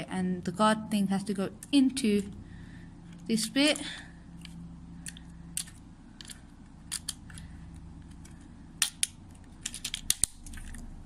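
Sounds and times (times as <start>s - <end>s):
hard plastic parts clicking: 3.1s - 10.8s.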